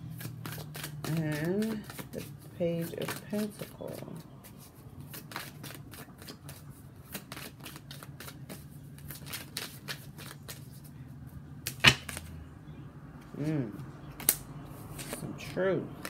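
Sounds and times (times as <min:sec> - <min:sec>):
cards being shuffled: 0:00.0 - 0:10.9, 0:14.1 - 0:16.0.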